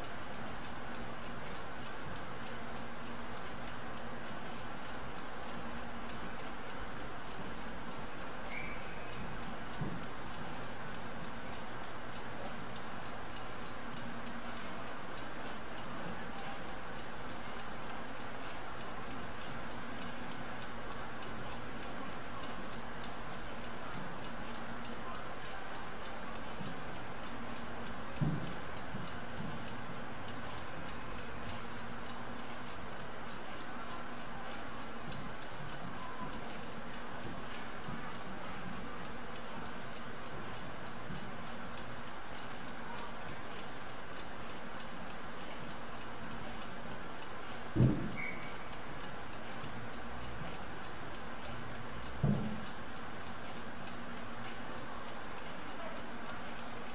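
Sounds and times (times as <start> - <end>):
stopclock ticking rapidly: 0.0 - 56.9
soft knock: 47.8 - 48.1.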